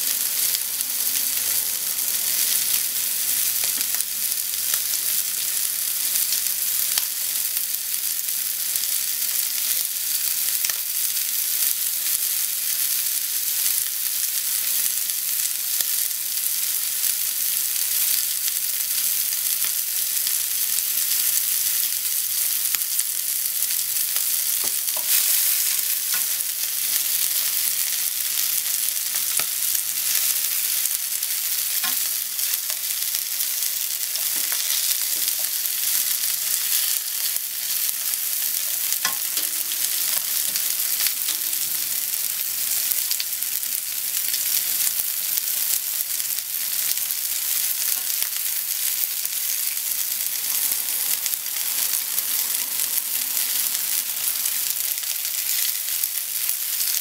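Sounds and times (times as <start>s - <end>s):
meat sizzling in a frying pan: 0.0s - 57.0s
chopsticks tapping a pan: 39.0s - 41.6s.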